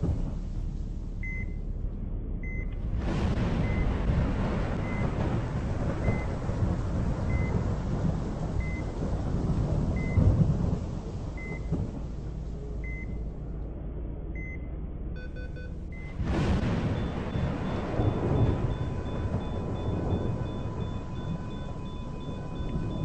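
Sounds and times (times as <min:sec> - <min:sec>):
steady low rumble: 0:00.0 - 0:23.0
heart monitor beeps: 0:11.4 - 0:11.7, 0:12.8 - 0:13.2, 0:14.4 - 0:16.2, 0:17.0 - 0:23.0.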